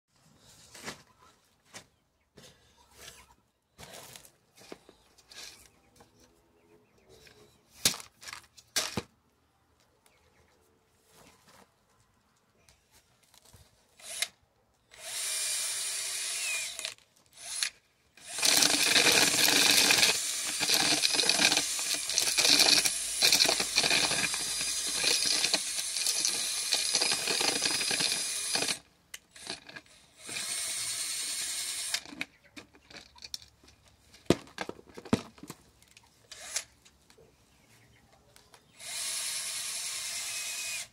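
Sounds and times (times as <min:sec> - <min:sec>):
cordless drill spinning: 0:14.0 - 0:33.4, 0:36.3 - 0:36.7, 0:38.8 - 0:40.9.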